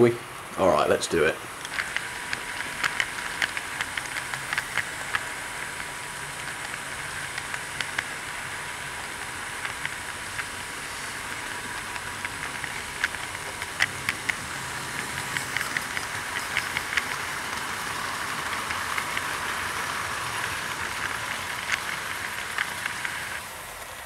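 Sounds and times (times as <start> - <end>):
model train wheels rolling on rails: 0.0 - 24.0
sharp clicks: 1.6 - 8.3, 20.4 - 23.4.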